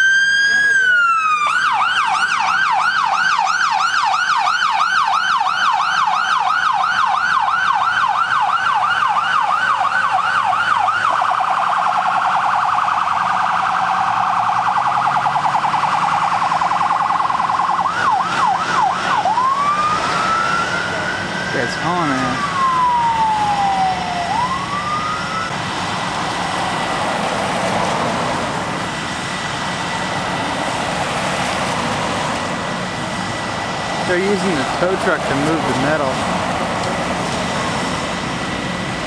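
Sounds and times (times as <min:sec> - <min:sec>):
electronic siren: 0:00.0 - 0:25.8.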